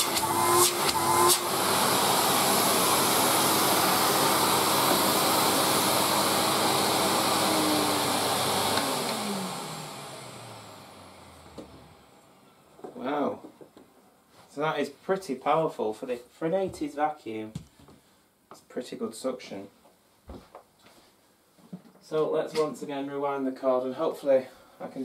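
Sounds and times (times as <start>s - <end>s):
vacuum motor winding down: 0.0s - 12.3s
vacuum cleaner running: 0.0s - 12.4s.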